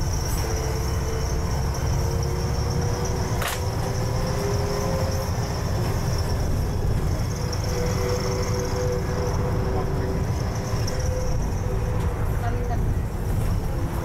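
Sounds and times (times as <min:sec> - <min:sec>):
bus engine and road rumble: 0:00.0 - 0:14.0.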